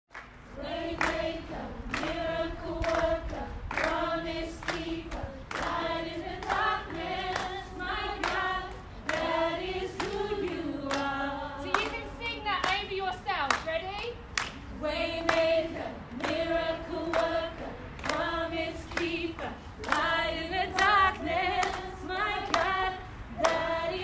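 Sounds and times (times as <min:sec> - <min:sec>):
hand claps: 0:00.1 - 0:02.2, 0:02.8 - 0:04.0, 0:04.6 - 0:12.9, 0:13.5 - 0:14.6, 0:15.2 - 0:15.6, 0:16.2 - 0:22.8, 0:23.4 - 0:23.8.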